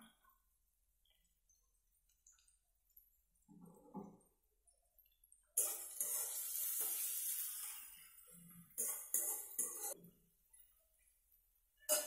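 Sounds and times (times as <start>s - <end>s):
onions sizzling in hot oil: 5.6s - 8.2s.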